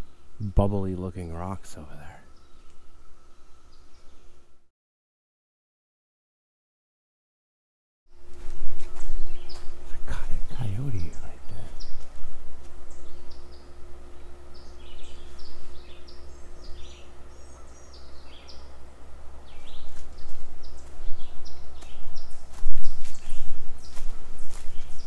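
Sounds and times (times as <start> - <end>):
songbirds chirping: 0.0 - 4.7, 8.1 - 25.0
steady low rumble: 8.2 - 25.0
footstep knocks on trail: 21.8 - 25.0.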